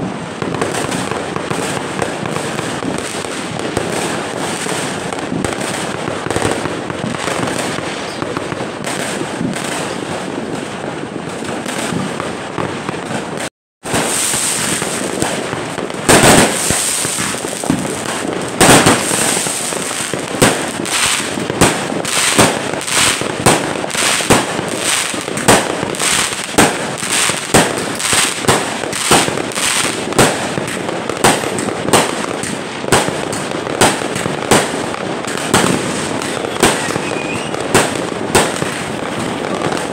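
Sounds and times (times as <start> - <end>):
firework launching loud bangs: 0.0 - 39.9
fireworks crackling: 0.0 - 39.9.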